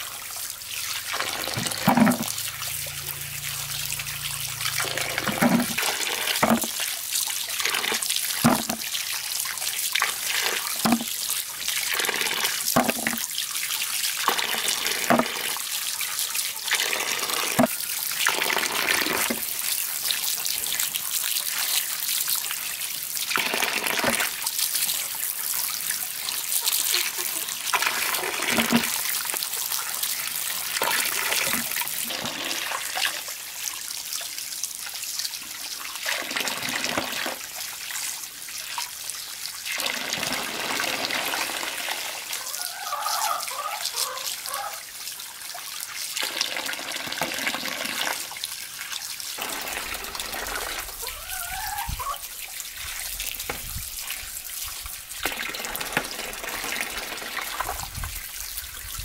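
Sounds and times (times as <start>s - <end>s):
water splashing into metal basin: 0.0s - 15.7s, 49.4s - 58.3s.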